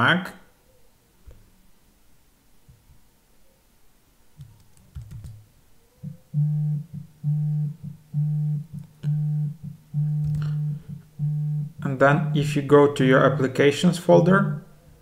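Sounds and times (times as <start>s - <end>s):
repeated low bass note: 6.1s - 13.6s.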